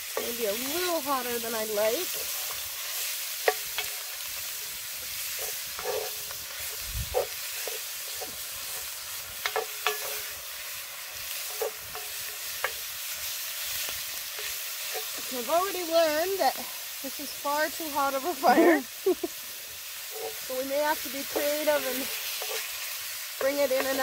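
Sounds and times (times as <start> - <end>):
meat sizzling in a pot: 0.0 - 24.0
wooden spoon stirring: 20.1 - 24.0.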